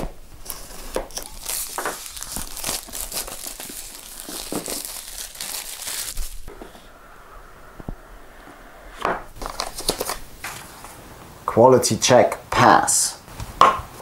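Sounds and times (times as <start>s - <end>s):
plastic wrap crinkling and tearing: 0.0s - 6.5s, 9.3s - 10.7s.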